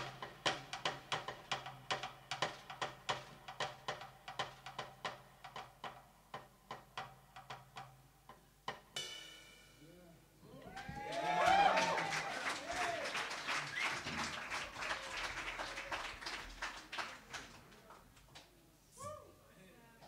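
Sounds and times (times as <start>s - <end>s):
drum kit solo: 0.0s - 9.8s.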